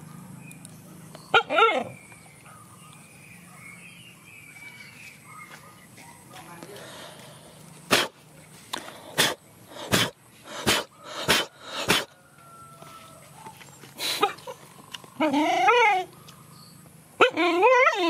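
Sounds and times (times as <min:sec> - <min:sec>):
dog whining: 0:01.3 - 0:02.0, 0:15.2 - 0:16.2, 0:17.2 - 0:18.0.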